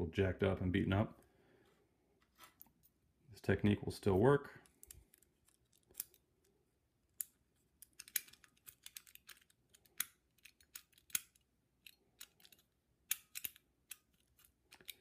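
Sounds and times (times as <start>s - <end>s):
padlock clicking and rattling: 4.7s - 15.0s.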